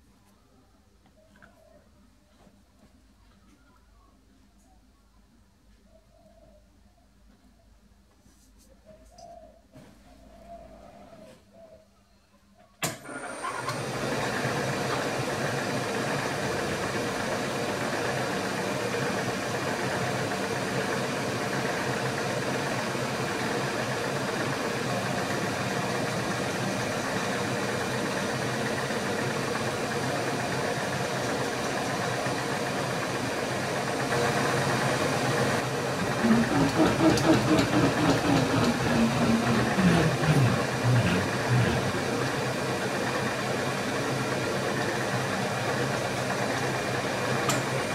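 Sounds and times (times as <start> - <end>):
milling machine motor hum: 34.0 - 47.9.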